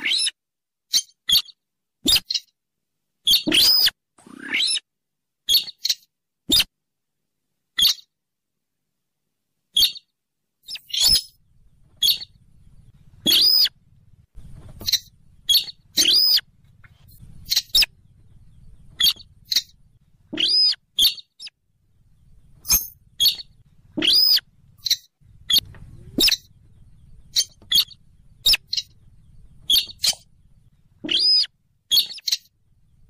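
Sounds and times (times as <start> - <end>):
rail squeaky calls: 3.3 - 4.8, 10.7 - 11.4, 12.0 - 12.4, 13.2 - 13.7, 14.8 - 18.0, 18.9 - 19.8, 20.4 - 21.5, 22.6 - 26.6, 27.2 - 29.0, 29.6 - 30.4, 31.0 - 32.5
faint low hum: 10.5 - 33.0.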